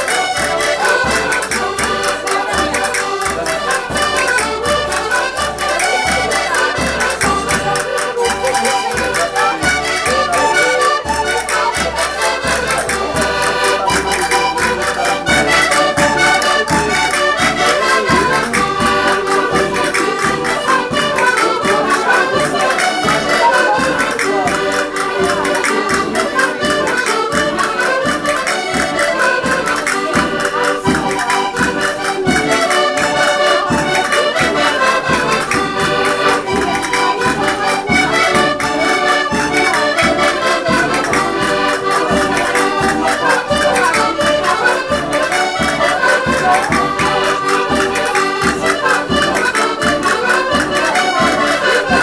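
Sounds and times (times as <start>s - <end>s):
accordion folk dance music: 0.0s - 52.0s.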